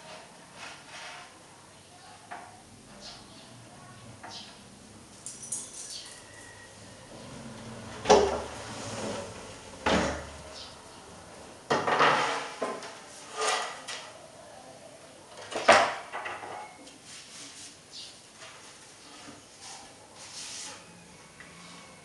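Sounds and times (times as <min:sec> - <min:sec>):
shelf boards knocking and clattering: 0:08.0 - 0:08.6, 0:11.7 - 0:12.8.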